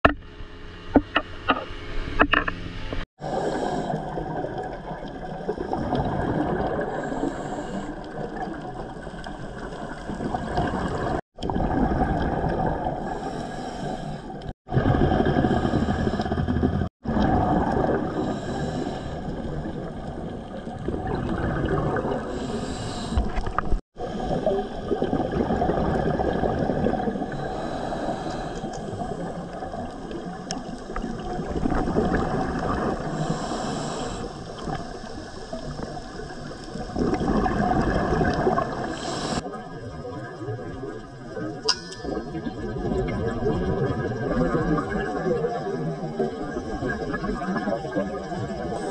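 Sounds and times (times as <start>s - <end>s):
bubbly exhalations: 3.3s - 13.4s, 14.7s - 33.5s, 35.6s - 39.4s, 41.9s - 48.9s
regulator hissing inhalations: 6.9s - 8.1s, 13.1s - 14.4s, 18.2s - 19.4s, 22.3s - 23.4s, 27.3s - 29.3s, 33.2s - 35.5s, 39.0s - 39.4s.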